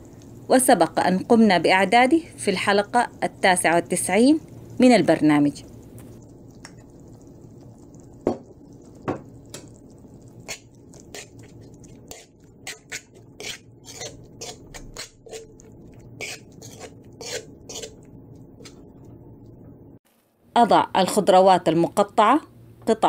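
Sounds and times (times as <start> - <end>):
utensil scraping a wok: 10.3 - 18.8.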